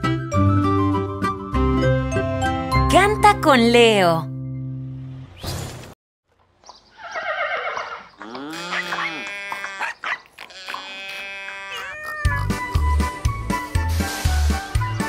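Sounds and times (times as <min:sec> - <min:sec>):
upbeat children's song music: 0:00.0 - 0:04.2, 0:12.4 - 0:15.0
cartoon farm animal calls: 0:06.9 - 0:12.8.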